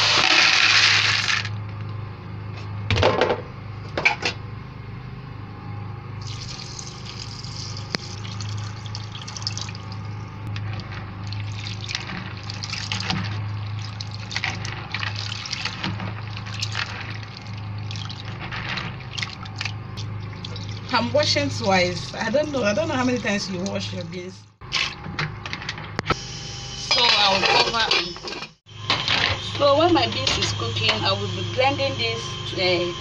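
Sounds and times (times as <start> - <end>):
steady low hum: 1.6 - 33.0
beans sloshing in water: 6.2 - 10.1, 11.2 - 23.9
water running into bowl: 6.2 - 10.4, 11.2 - 24.1.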